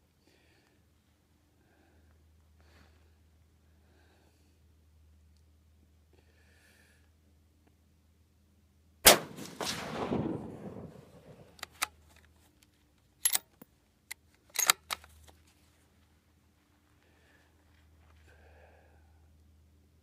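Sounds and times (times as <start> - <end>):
rifle shot with echo: 9.0 - 11.7
rifle bolt clicking: 13.2 - 13.6, 14.5 - 15.1.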